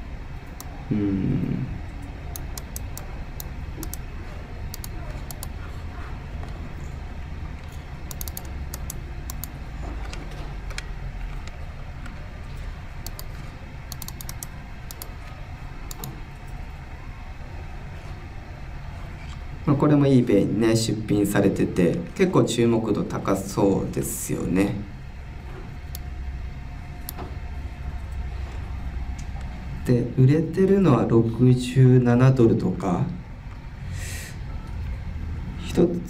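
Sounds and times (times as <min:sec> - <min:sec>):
steady low hum: 0:00.0 - 0:36.0
keyboard typing: 0:02.0 - 0:05.8, 0:07.5 - 0:16.2.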